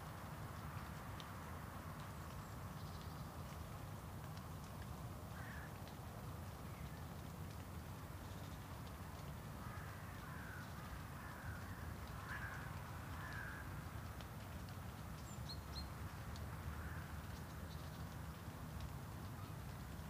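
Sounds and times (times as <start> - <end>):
crow cawing: 5.4 - 5.7, 9.6 - 13.7, 16.8 - 17.1.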